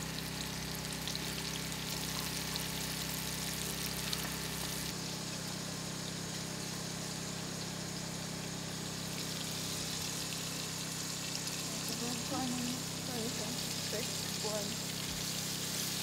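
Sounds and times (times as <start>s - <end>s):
low motor hum: 0.0s - 16.0s
running water: 7.4s - 16.0s.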